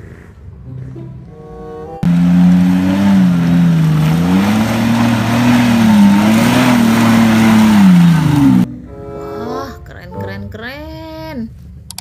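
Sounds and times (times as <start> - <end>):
suv engine revving in mud: 2.0 - 8.7.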